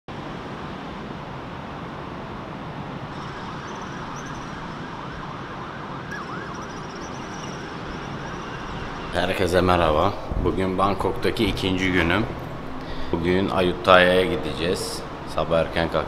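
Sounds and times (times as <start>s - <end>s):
city traffic hum: 0.1s - 16.0s
distant siren wailing: 3.1s - 13.1s.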